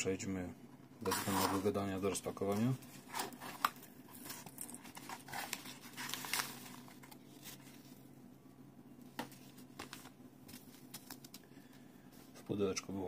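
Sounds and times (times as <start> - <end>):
paper and packing peanuts rustling: 2.4 - 8.0.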